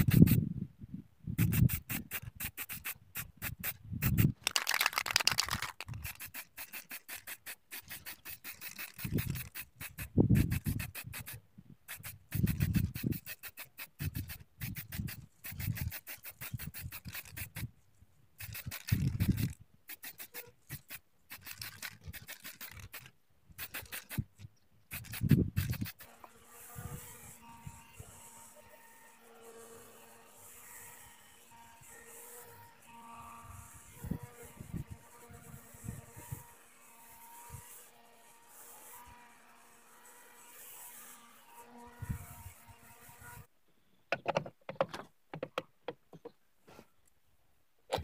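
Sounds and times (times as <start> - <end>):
aerosol spray can hissing: 0.0 - 0.4, 1.4 - 17.7, 18.4 - 24.3, 24.9 - 26.2
rubbing handling noise: 1.4 - 17.8, 18.4 - 26.2.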